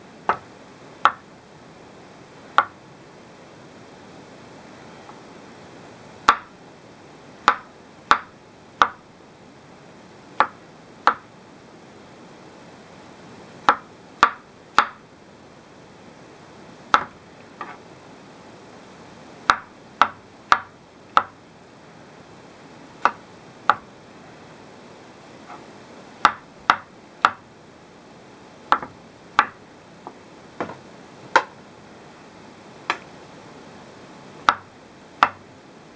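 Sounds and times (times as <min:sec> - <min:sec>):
knife chopping on wooden board: 0:16.9 - 0:17.8, 0:28.7 - 0:29.6.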